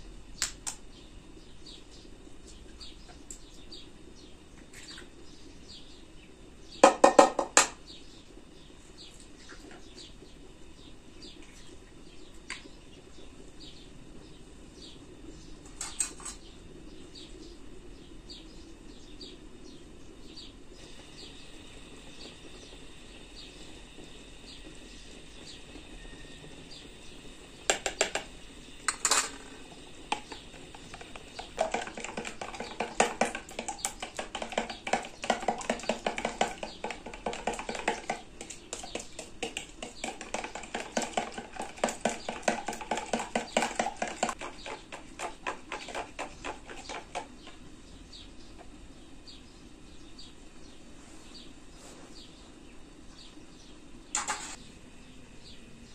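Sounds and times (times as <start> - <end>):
utensil beating eggs in plastic bowl: 20.8 - 48.8.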